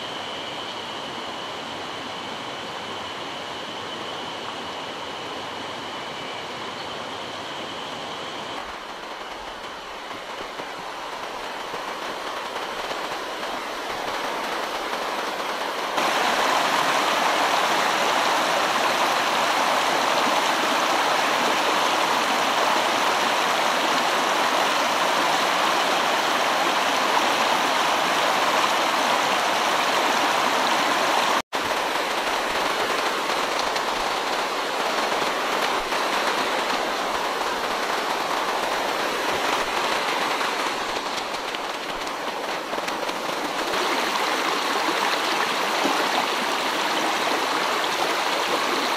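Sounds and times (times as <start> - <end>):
stream rushing over rocks: 10.8 - 48.9.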